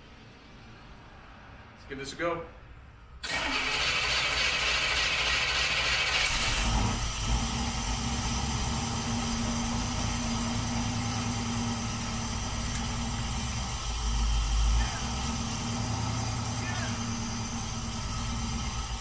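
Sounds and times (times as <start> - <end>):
engine starter cranking: 3.2 - 9.4
car engine running: 3.4 - 19.0.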